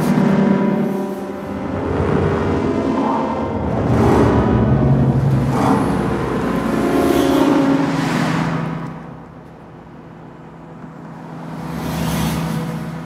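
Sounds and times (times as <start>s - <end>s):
vocoder drone tones: 0.0s - 9.5s
car passing by: 11.4s - 13.0s.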